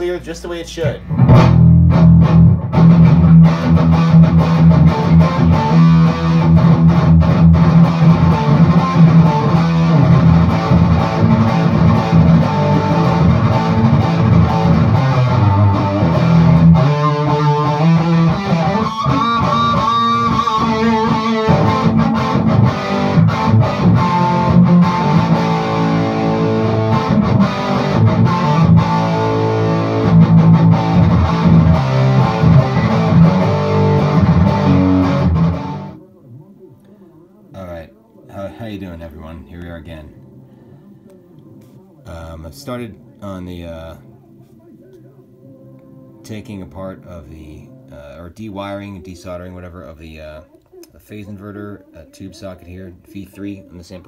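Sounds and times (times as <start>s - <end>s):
overdriven electric guitar: 1.1s - 36.0s.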